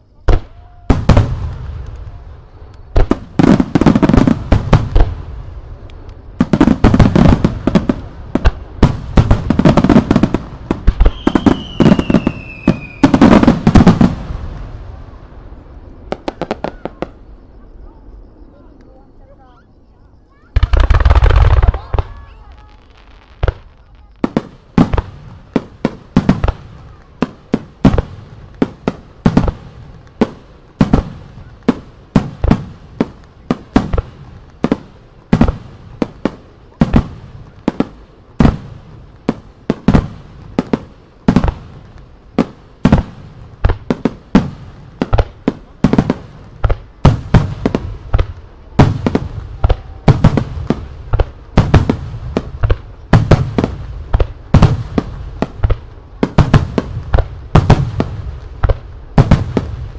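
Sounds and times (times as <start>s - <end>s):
fireworks bursting with bangs: 0.0s - 17.9s, 20.3s - 59.9s.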